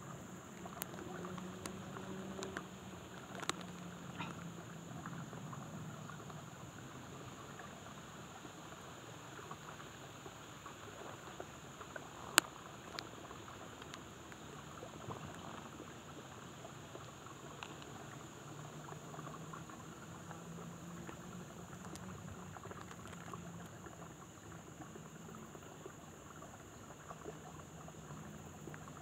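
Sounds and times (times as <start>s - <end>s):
crackles in dry leaves: 0.0s - 4.5s, 10.7s - 18.2s, 21.0s - 24.0s
insects droning: 0.0s - 29.0s.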